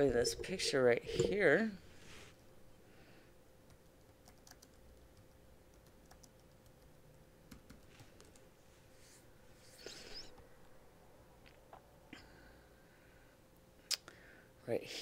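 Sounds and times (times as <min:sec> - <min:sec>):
typing on computer keyboard: 0:03.7 - 0:08.4.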